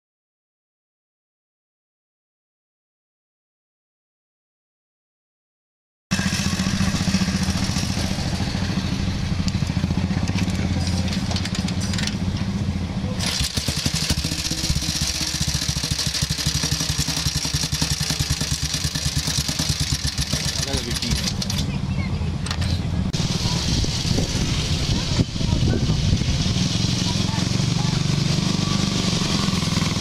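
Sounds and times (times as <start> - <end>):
motorcycle engine running: 6.1 - 30.0.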